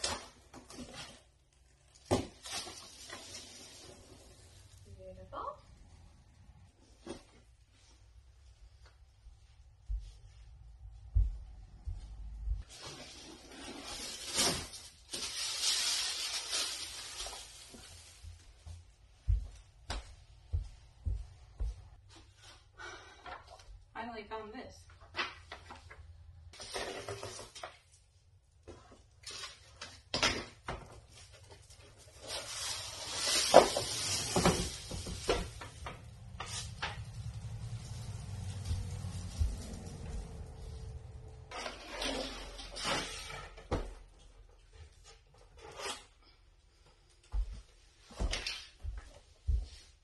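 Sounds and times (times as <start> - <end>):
packing paper rustling: 0.0 - 4.7, 12.7 - 18.6, 30.9 - 43.3.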